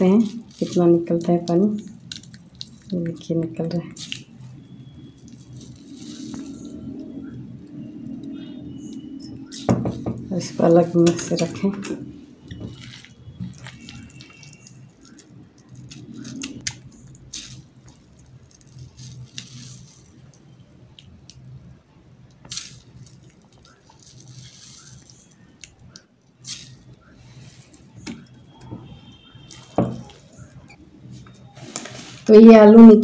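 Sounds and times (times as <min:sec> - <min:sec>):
wet grated potato squishing: 0:12.4 - 0:20.5.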